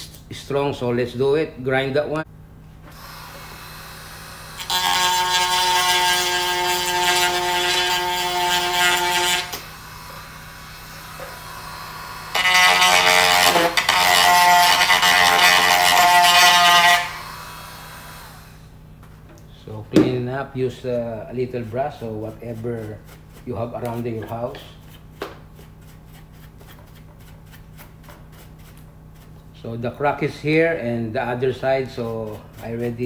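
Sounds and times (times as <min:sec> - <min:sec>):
motor hum: 0:02.2 - 0:33.0
rotary tool grinding: 0:04.4 - 0:18.6, 0:31.6 - 0:33.0.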